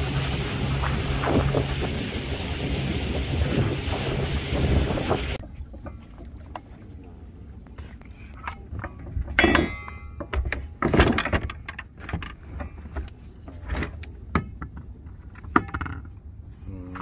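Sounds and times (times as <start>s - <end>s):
low steady rumble: 0.0s - 10.8s
metal clanks of fishing gear: 8.3s - 16.3s.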